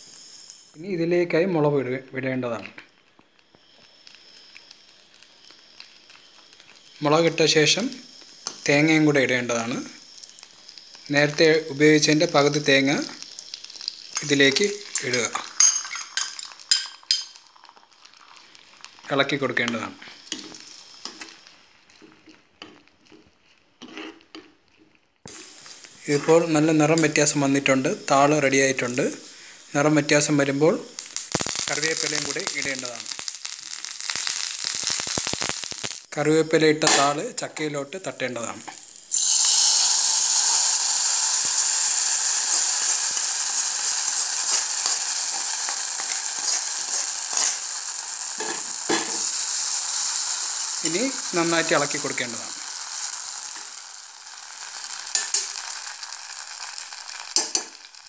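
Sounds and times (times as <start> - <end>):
steady hiss: 0.0 - 24.6, 25.2 - 58.0
faint sizzle of frying: 0.0 - 58.0
metal spatula scraping a pan: 23.8 - 24.3, 46.0 - 47.7.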